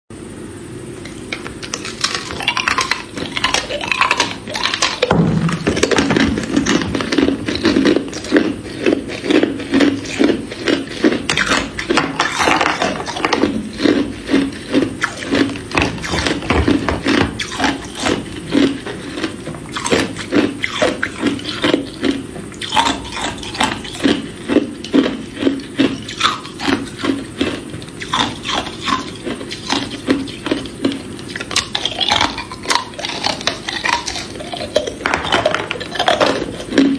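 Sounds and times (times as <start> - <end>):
ice cubes crunching while chewed: 1.0 - 36.9.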